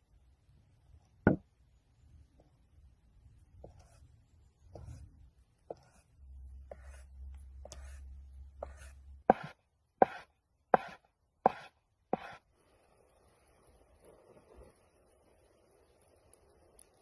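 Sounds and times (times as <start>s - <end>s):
knife chopping dough on board: 8.6s - 12.4s.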